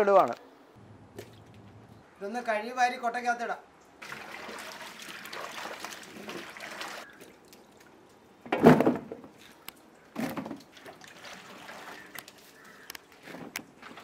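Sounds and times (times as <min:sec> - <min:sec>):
water splash: 0:04.0 - 0:07.6, 0:10.6 - 0:12.4
hands sloshing water in basin: 0:04.0 - 0:07.9, 0:10.6 - 0:12.6, 0:13.7 - 0:14.0.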